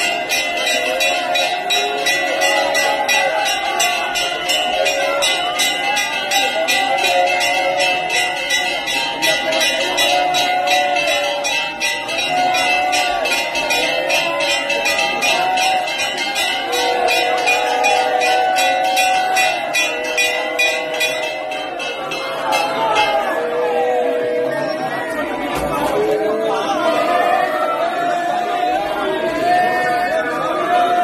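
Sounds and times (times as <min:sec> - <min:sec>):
temple bells ringing rapidly: 0:00.0 - 0:31.0.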